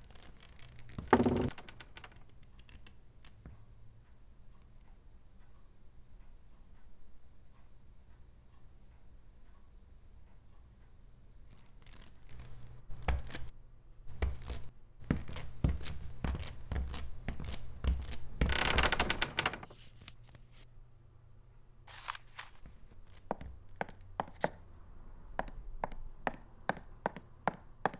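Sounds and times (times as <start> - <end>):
footsteps on wooden floor: 1.0 - 1.5.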